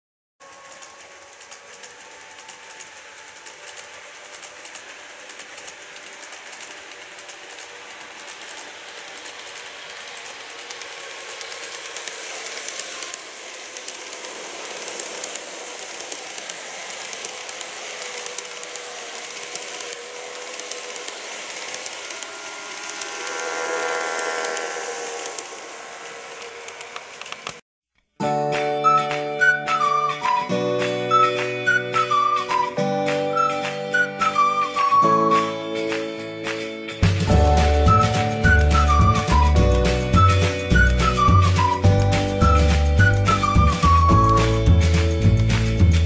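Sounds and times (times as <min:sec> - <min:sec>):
small electric motor whining: 0:00.4 - 0:27.6
wheels ticking on rails: 0:00.4 - 0:27.6, 0:29.4 - 0:46.0.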